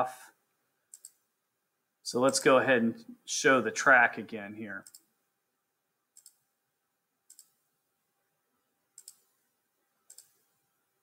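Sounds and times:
computer mouse clicking: 0.9s - 1.2s, 4.8s - 5.1s, 6.1s - 6.5s, 7.3s - 7.6s, 9.0s - 9.4s, 10.0s - 10.6s.

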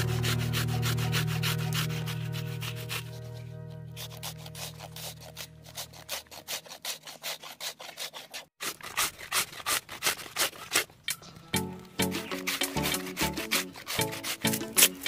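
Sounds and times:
mango grated on metal grater: 4.0s - 10.9s, 11.6s - 15.0s.

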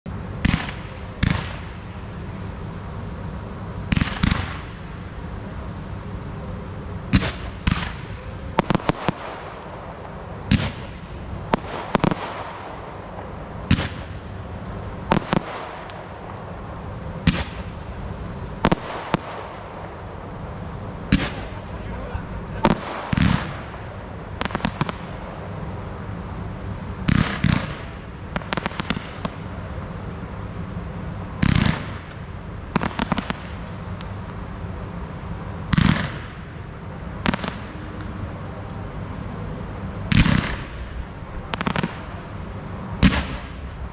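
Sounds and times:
fireworks popping: 0.4s - 2.0s, 3.8s - 5.0s, 7.1s - 16.6s, 17.2s - 17.8s, 18.6s - 20.1s, 21.0s - 25.4s, 27.0s - 29.7s, 31.4s - 34.4s, 35.7s - 36.6s, 37.2s - 38.7s, 40.1s - 42.3s, 43.0s - 43.9s.

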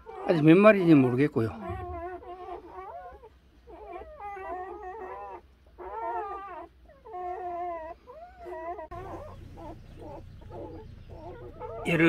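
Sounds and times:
puppies crying: 0.0s - 12.0s.

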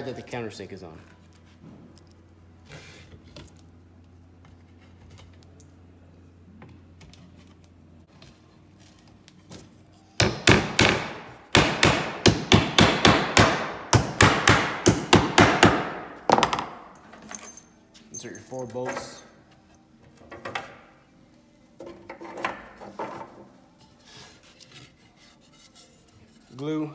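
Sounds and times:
hammer striking metal: 10.2s - 16.8s.

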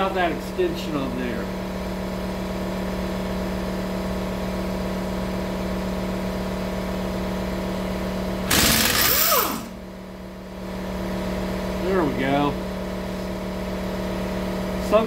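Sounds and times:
steady machine hum: 0.0s - 15.0s
impact wrench rattling: 8.5s - 9.8s.

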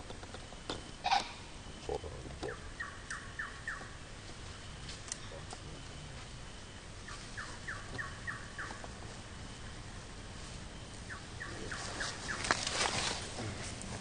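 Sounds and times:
bird calling falling notes: 0.7s - 1.7s, 7.0s - 9.0s.

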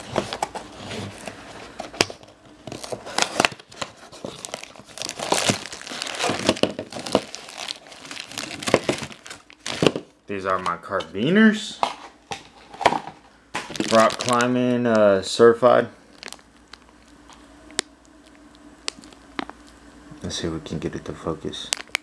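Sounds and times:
plastic bags crinkling: 0.0s - 10.1s, 12.3s - 15.2s, 16.0s - 17.4s, 18.2s - 19.8s, 21.6s - 22.0s.

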